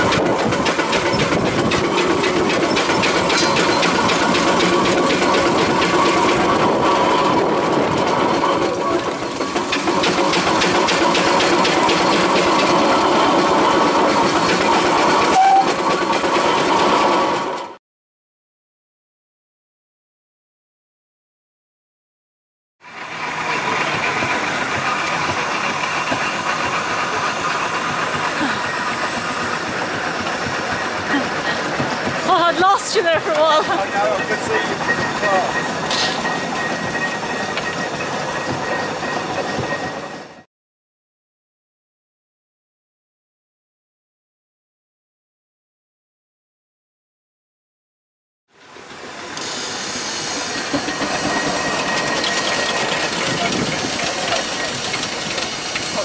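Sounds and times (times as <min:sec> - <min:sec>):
steam roller engine beat: 0:00.0 - 0:17.8, 0:22.8 - 0:40.4, 0:48.6 - 0:56.0.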